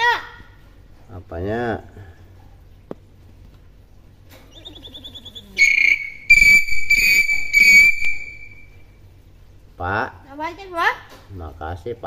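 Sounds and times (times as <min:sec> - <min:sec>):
myna loud high whistle: 0:04.6 - 0:08.8.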